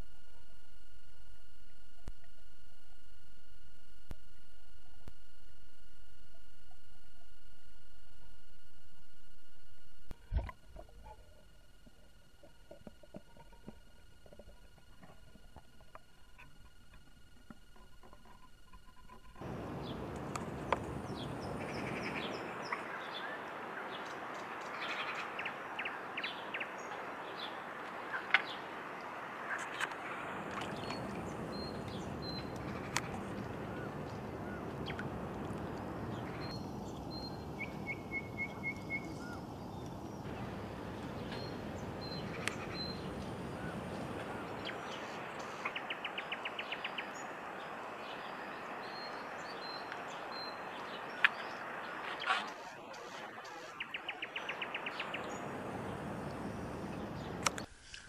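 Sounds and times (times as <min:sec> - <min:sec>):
background hiss: 0:00.0 - 0:58.0
small birds chirping: 0:10.6 - 0:57.7.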